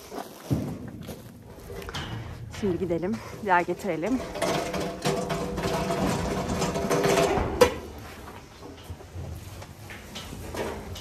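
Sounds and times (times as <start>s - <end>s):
cart rattling and whirring: 3.9s - 11.0s.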